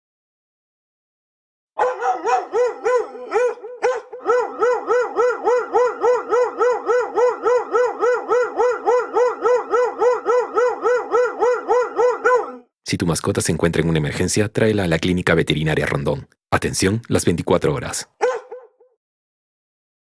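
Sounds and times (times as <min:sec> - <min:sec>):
dog barking rapidly: 0:01.8 - 0:12.7, 0:18.2 - 0:19.0.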